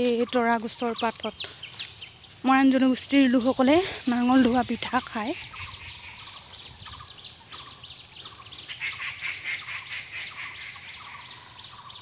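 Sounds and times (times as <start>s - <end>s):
birds chirping: 0.0s - 12.0s
lower repeated bird notes: 0.1s - 12.0s.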